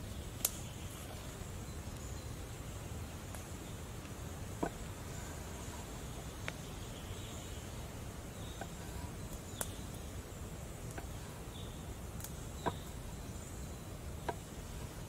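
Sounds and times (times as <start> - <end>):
outdoor background hiss: 0.0 - 15.0.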